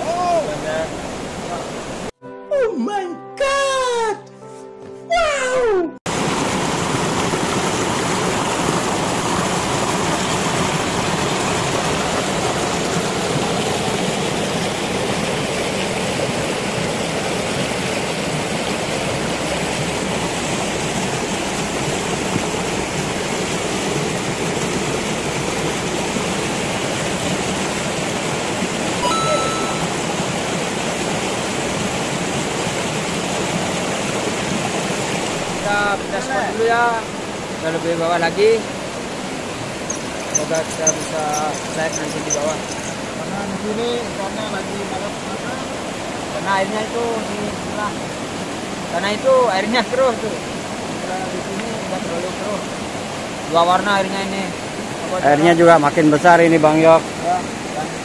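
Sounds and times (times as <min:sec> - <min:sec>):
river water rushing: 0:00.0 - 0:02.2, 0:06.1 - 0:58.0
high-pitched tone: 0:29.0 - 0:30.1.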